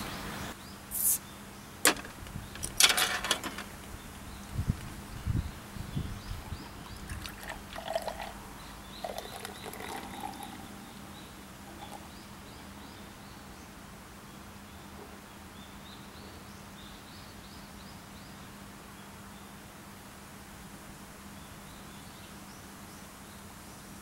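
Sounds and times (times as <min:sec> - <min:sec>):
small birds chirping: 0:00.0 - 0:02.8, 0:03.6 - 0:19.6
beer glugging into glass: 0:06.4 - 0:08.4, 0:09.0 - 0:11.0
thin stream pouring: 0:06.4 - 0:12.1.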